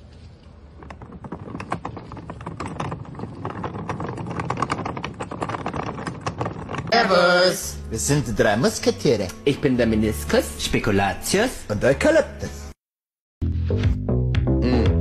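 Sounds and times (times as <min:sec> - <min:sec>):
dolly wheels clattering over paving: 0:00.1 - 0:09.3.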